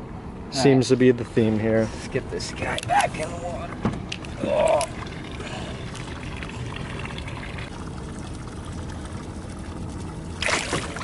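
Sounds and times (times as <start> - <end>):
water splashing and trickling: 2.6 - 11.0.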